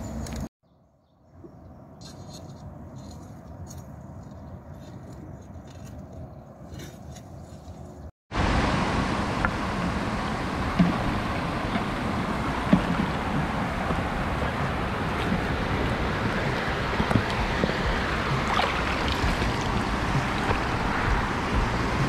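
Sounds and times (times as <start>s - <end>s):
shallow river water rushing: 8.3s - 22.0s.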